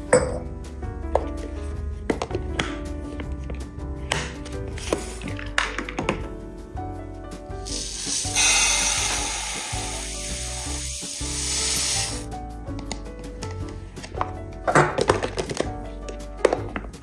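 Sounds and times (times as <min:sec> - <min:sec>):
background music: 0:00.0 - 0:17.0
steady hiss: 0:07.7 - 0:12.3.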